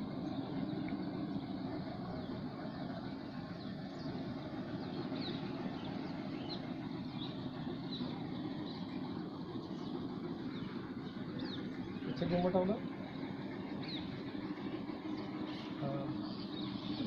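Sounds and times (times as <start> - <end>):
distant road traffic rumble: 0.0 - 17.0
small birds chirping: 0.0 - 17.0.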